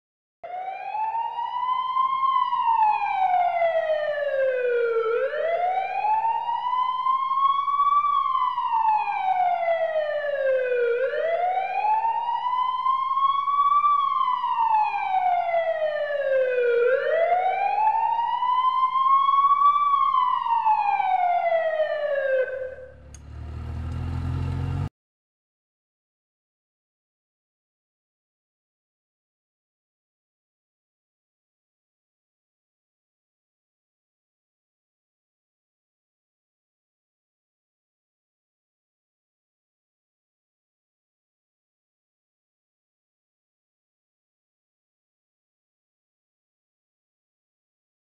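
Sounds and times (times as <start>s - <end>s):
emergency siren wailing: 0.4s - 24.9s.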